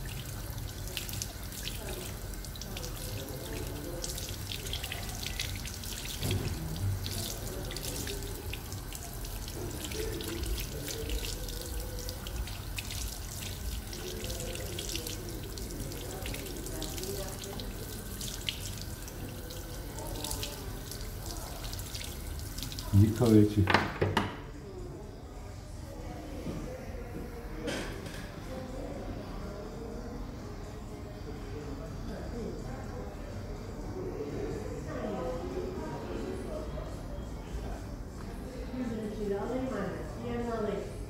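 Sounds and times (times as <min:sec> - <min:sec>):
water spraying and splashing into basin: 0:00.0 - 0:23.5.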